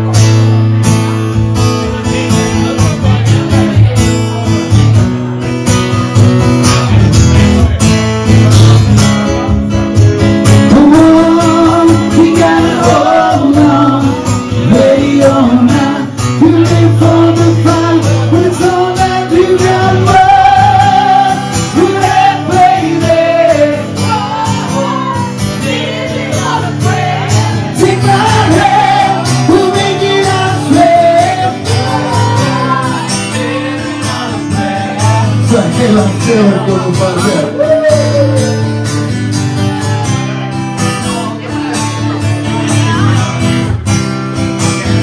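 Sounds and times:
strummed acoustic guitar: 0.0s - 45.0s
two men singing together: 10.7s - 38.6s.

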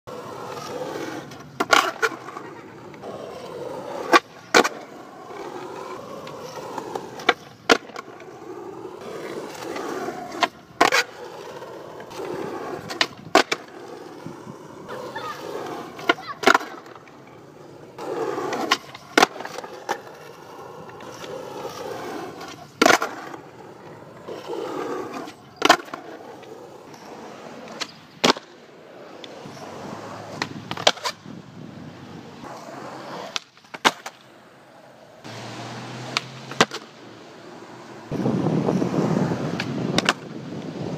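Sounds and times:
skateboard wheels rolling: 0.1s - 40.9s
skateboard slapping down on landing: 6.2s - 8.2s, 12.0s - 13.8s, 18.0s - 20.3s, 20.9s - 23.4s, 27.7s - 28.6s, 30.3s - 31.2s, 33.2s - 34.3s, 36.1s - 36.9s, 39.6s - 40.4s
skateboard tail snapping: 6.2s - 8.3s, 12.0s - 13.8s, 18.0s - 21.8s, 22.4s - 23.4s, 27.7s - 28.6s, 30.4s - 31.2s, 33.2s - 34.3s, 36.0s - 37.0s, 39.5s - 40.7s.

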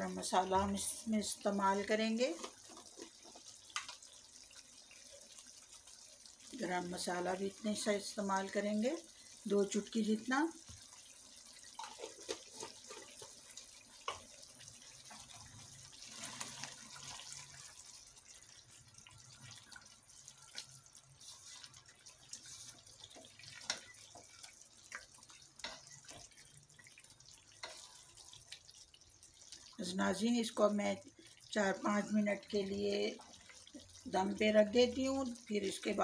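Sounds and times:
gravy bubbling and sloshing: 10.5s - 36.0s.

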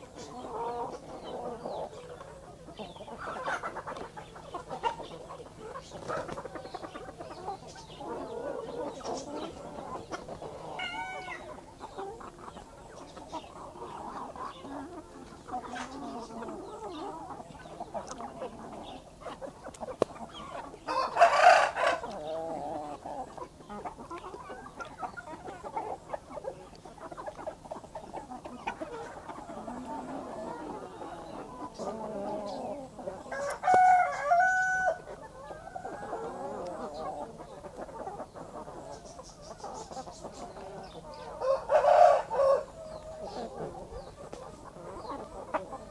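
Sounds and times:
chickens clucking: 0.0s - 45.9s
loud chicken call: 8.1s - 11.6s, 20.9s - 22.8s, 32.0s - 37.0s, 41.2s - 43.7s.

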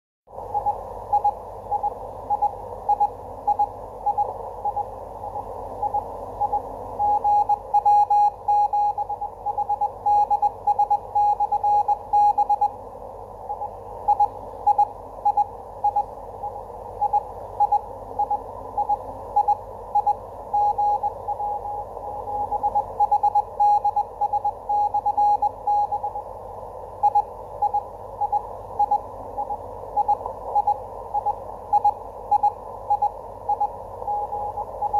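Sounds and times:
radio band noise hiss: 0.3s - 34.9s
morse code tone: 5.8s - 12.7s, 17.0s - 26.2s.

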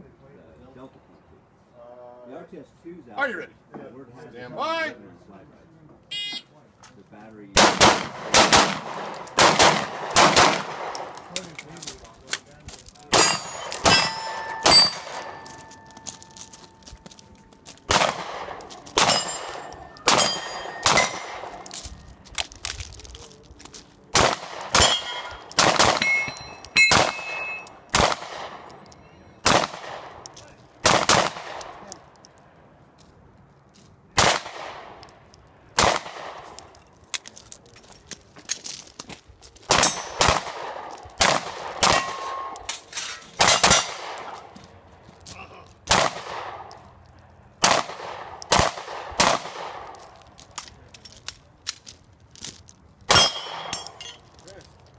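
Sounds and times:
handgun shots echoing: 7.6s - 11.3s, 13.1s - 16.5s, 17.9s - 21.8s, 24.1s - 28.8s, 39.7s - 42.7s, 43.4s - 44.5s, 53.1s - 54.2s
steel target ringing: 13.1s - 17.0s, 18.6s - 21.7s, 24.8s - 27.9s, 41.8s - 44.4s, 53.1s - 54.2s.

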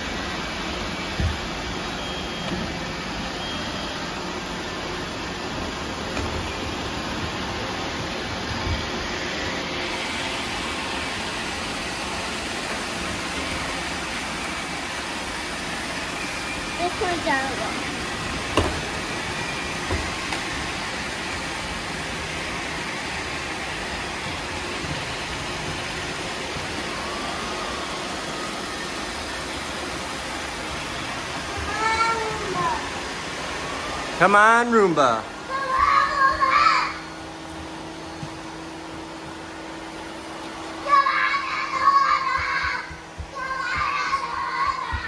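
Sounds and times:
robot vacuum cleaners whirring: 0.0s - 45.0s.

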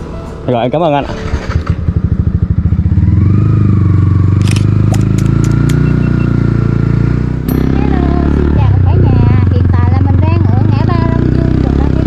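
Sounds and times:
motorcycle engine pulling away: 1.0s - 12.0s
sharp clicks: 4.4s - 6.0s.

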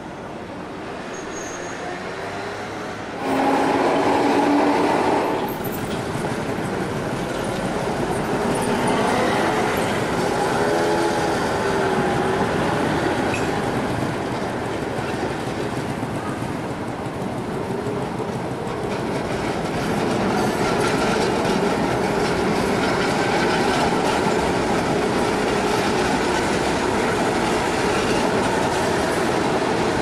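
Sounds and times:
trams running on rails: 0.0s - 30.0s
tram wheel squeal: 1.0s - 13.8s, 18.9s - 30.0s.

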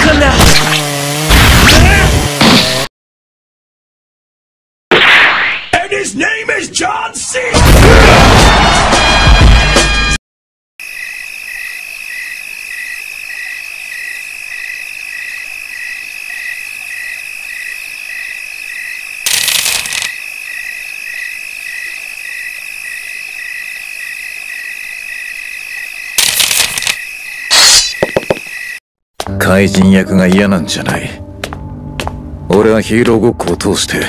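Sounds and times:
cricket chirp pulsing: 10.8s - 28.8s
crickets trilling: 10.8s - 28.8s
short noise bursts: 19.2s - 20.2s, 26.2s - 27.9s.

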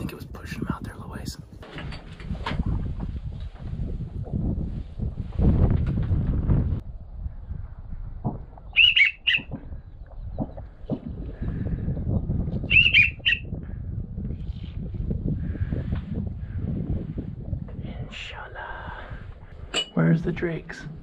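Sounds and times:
low rustle: 1.6s - 6.8s
duck whistle call: 8.8s - 9.5s, 12.7s - 13.4s.

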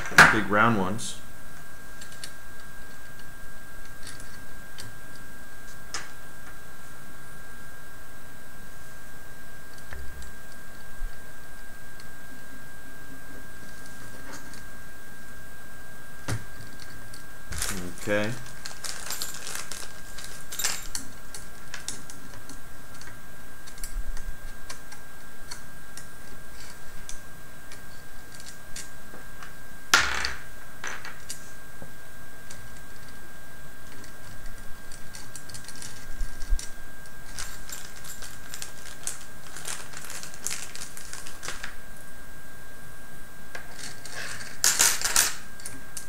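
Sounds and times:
plastic parts clicking and rattling: 17.5s - 22.2s, 37.3s - 41.7s.

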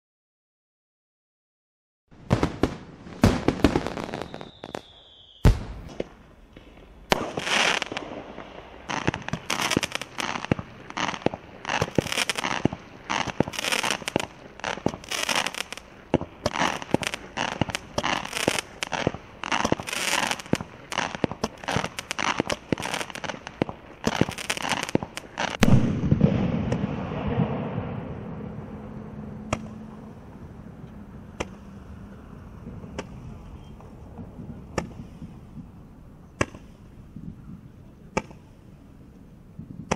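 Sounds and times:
firework bang: 2.2s - 31.8s
crackling firework comets: 2.2s - 39.9s
deep firework thud with rumble: 25.0s - 29.8s.

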